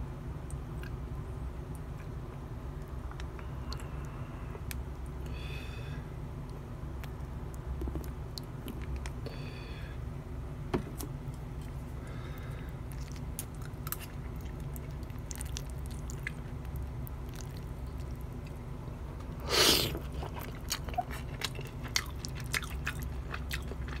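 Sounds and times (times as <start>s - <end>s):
steady low hum: 0.0s - 24.0s
person chewing: 12.4s - 18.6s, 19.4s - 24.0s.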